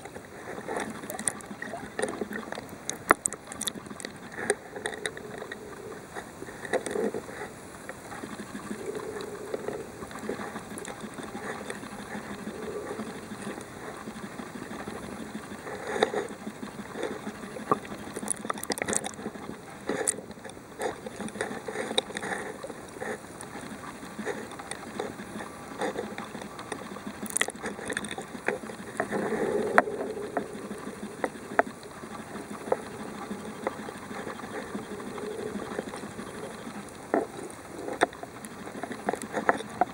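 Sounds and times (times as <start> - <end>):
muffled underwater water wash: 0.0 - 39.9.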